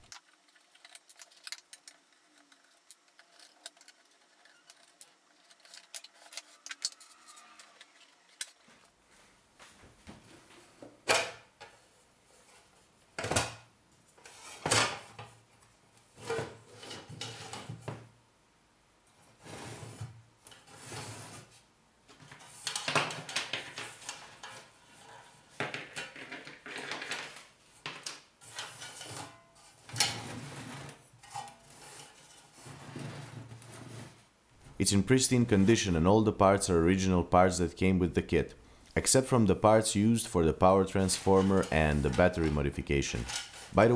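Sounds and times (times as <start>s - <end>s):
metal scraping and rattling: 28.4s - 34.2s, 41.1s - 43.9s.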